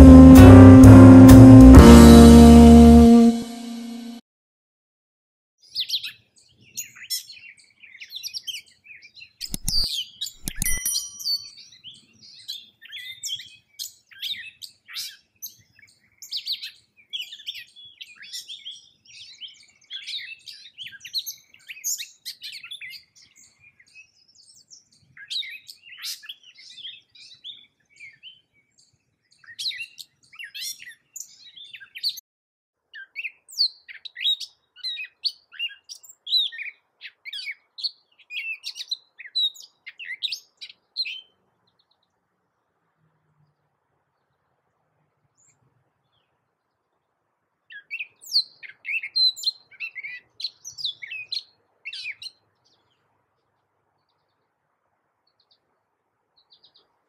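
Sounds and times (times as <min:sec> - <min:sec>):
bird singing high notes: 0:00.0 - 0:04.2, 0:10.5 - 0:11.6.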